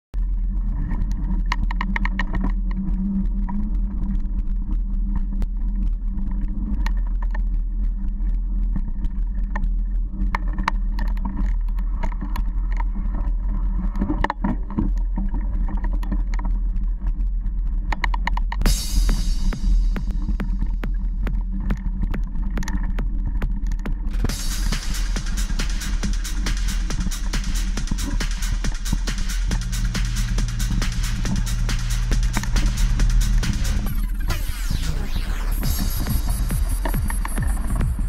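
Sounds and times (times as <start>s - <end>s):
wind rumble: 0.2s - 38.0s
bike clicks and rattles: 8.2s - 17.2s, 20.2s - 24.4s.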